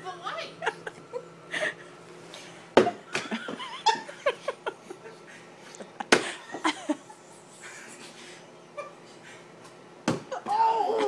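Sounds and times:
laughter and giggling: 0:03.2 - 0:08.2.

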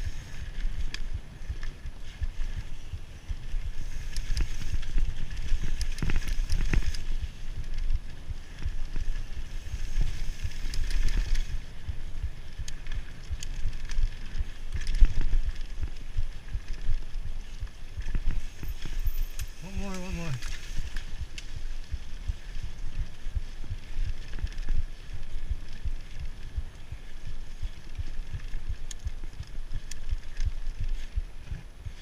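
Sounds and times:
bike clicking and rattling: 0:00.0 - 0:32.0
bike tyres rumbling over dirt: 0:00.0 - 0:32.0
wind buffeting microphone: 0:00.0 - 0:32.0.

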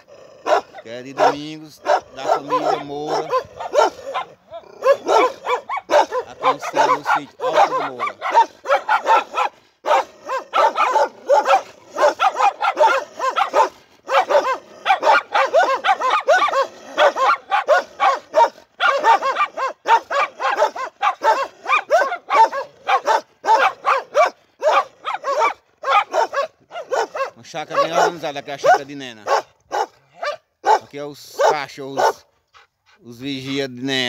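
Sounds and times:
dogs barking: 0:00.0 - 0:32.4, 0:33.2 - 0:33.7.

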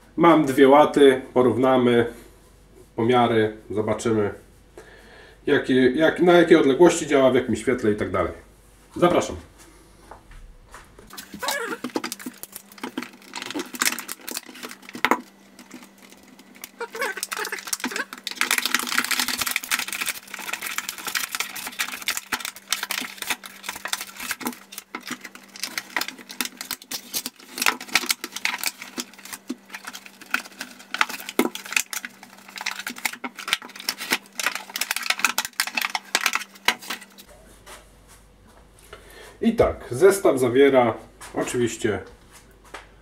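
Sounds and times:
faint steady hum: 0:00.0 - 0:43.0
plastic packaging crackling: 0:11.1 - 0:37.3.

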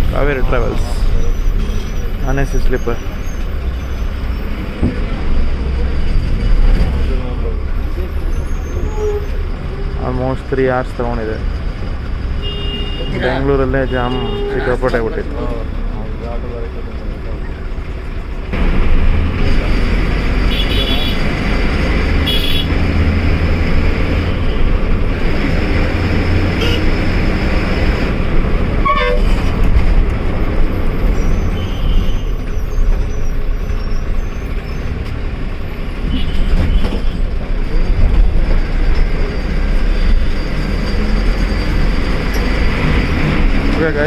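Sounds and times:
bus engine rumbling: 0:00.0 - 0:44.0
road noise: 0:00.0 - 0:44.0
vehicle horn toots: 0:12.4 - 0:14.8, 0:20.5 - 0:21.2, 0:22.2 - 0:22.7, 0:26.6 - 0:27.0, 0:28.8 - 0:29.4.

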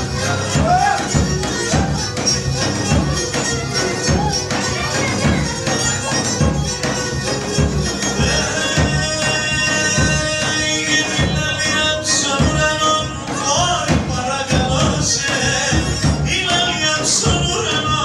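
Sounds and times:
bowed string melody: 0:00.0 - 0:13.6
large drum beating: 0:00.0 - 0:18.0.

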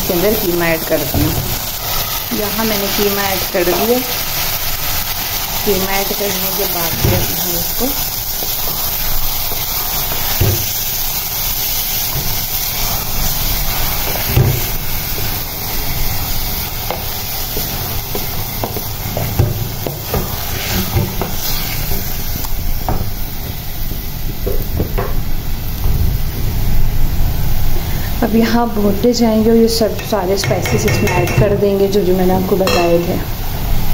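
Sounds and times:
meat sizzling in oil: 0:00.0 - 0:33.9
wooden spatula knocking on pot: 0:30.0 - 0:31.6.

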